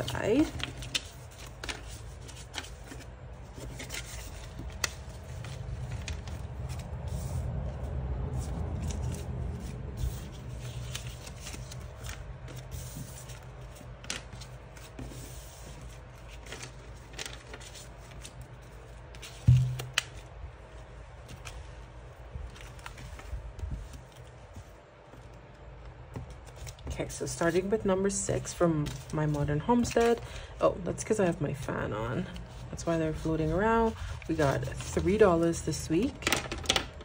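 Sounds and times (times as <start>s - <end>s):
banknotes rustling and sliding: 0.0s - 36.8s
fan humming: 0.0s - 37.0s
thump: 19.5s - 19.9s.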